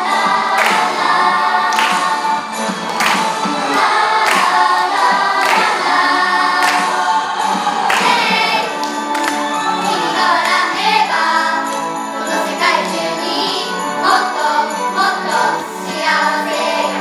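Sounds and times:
music with regular beat: 0.0s - 9.5s
children singing in chorus: 0.0s - 17.0s.

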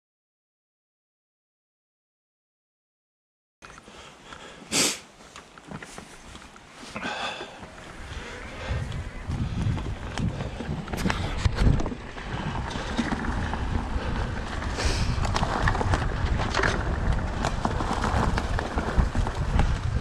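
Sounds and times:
wind rumbling on microphone: 7.1s - 20.0s
bike rattling clicks and knocks: 8.9s - 20.0s.

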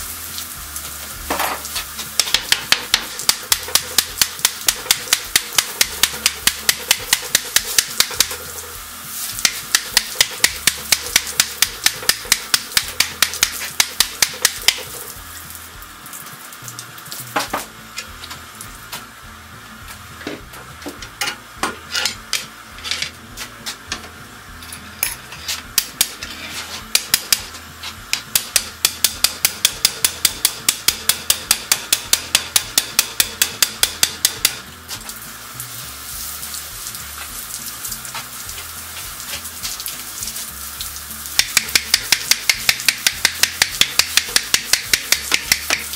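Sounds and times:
hammer tapping steel tire: 2.2s - 8.5s, 9.4s - 15.0s, 25.7s - 26.3s, 26.9s - 34.7s, 41.4s - 45.9s
steam hose hissing: 35.0s - 45.9s.

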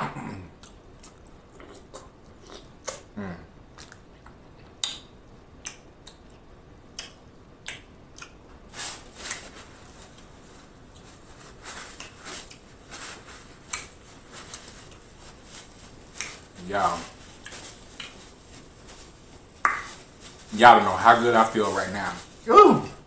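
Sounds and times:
sharp mouth clicks: 0.6s - 3.1s, 3.8s - 6.4s, 7.0s - 8.4s
person chewing: 0.6s - 8.4s, 10.9s - 20.2s.

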